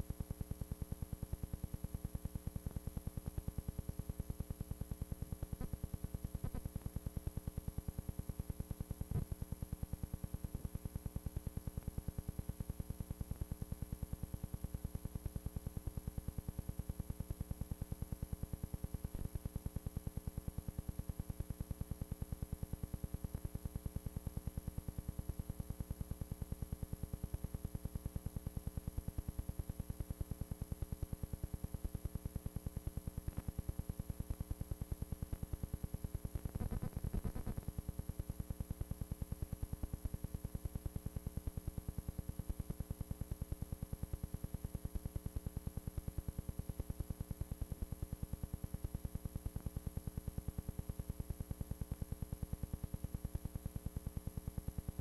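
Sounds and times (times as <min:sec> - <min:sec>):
faint high-pitched whine: 0:00.0 - 0:46.2
pulsing electrical hum: 0:36.0 - 0:38.2.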